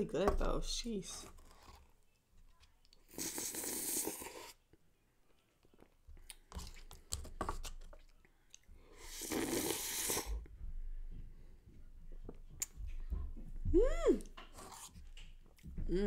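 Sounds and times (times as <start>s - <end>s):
slurping: 3.0s - 4.6s, 8.0s - 10.4s, 14.2s - 15.0s
spoon scraping paper cup: 14.5s - 15.0s.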